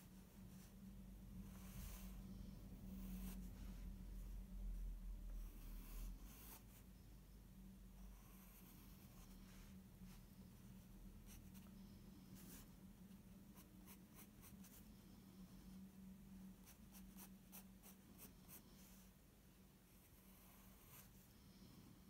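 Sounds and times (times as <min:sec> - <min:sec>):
low steady hum: 0:00.0 - 0:22.0
pencil scratching on paper: 0:01.4 - 0:03.8, 0:05.3 - 0:06.8, 0:08.0 - 0:09.7, 0:13.5 - 0:14.9, 0:16.6 - 0:19.1, 0:19.9 - 0:21.2.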